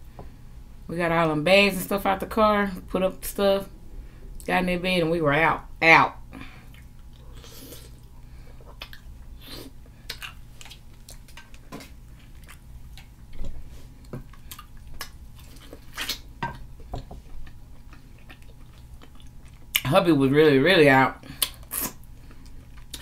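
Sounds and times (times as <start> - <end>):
low steady hum: 0.0 - 23.0
chewing and lip smacks: 6.6 - 19.9, 21.3 - 23.0.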